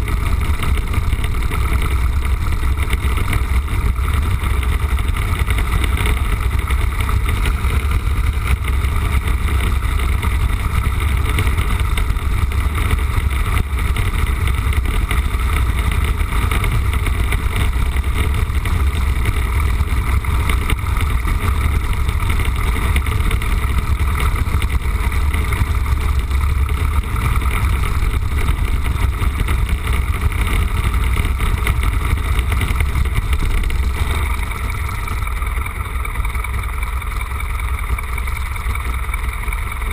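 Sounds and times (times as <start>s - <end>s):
light aircraft engine and propeller drone: 0.0s - 39.9s.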